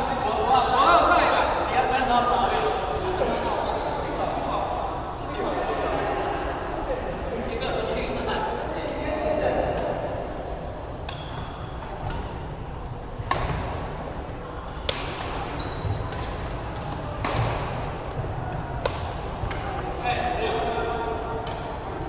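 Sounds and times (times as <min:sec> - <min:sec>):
hubbub of other games: 0:00.0 - 0:22.0
rackets striking shuttlecock: 0:11.0 - 0:14.0, 0:14.7 - 0:20.0, 0:21.4 - 0:21.9.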